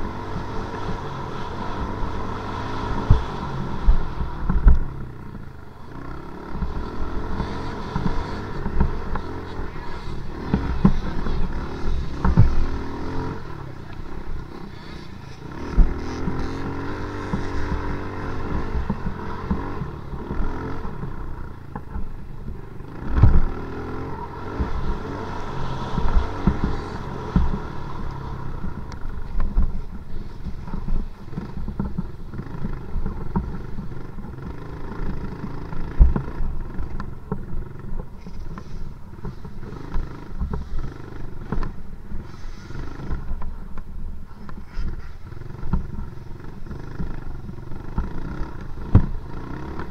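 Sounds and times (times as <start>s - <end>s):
dirt bike engine revving: 0.0s - 43.4s, 44.6s - 49.9s
sharp thumps: 6.5s - 23.6s.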